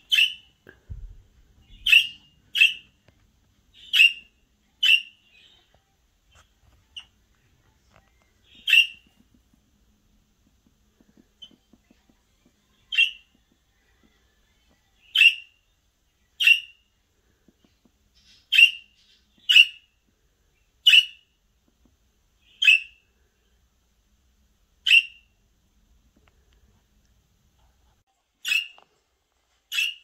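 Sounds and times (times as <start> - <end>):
budgerigars chirping: 0.0 - 0.5, 1.7 - 2.9, 3.8 - 5.6, 8.5 - 9.1, 15.1 - 15.5, 16.4 - 16.8, 18.2 - 19.9, 20.8 - 21.2, 22.5 - 23.0, 24.8 - 25.2.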